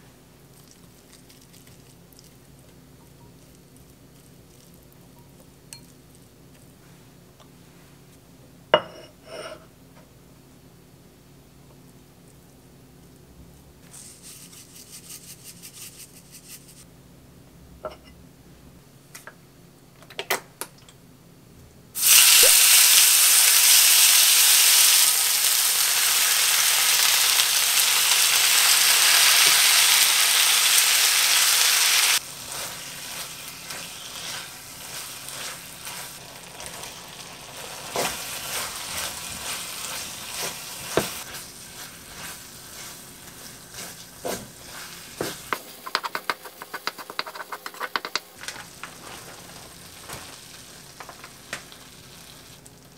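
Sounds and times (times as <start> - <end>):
food sizzling in a pan: 22.0 - 52.8
wooden spatula scraping a pan: 37.9 - 48.2.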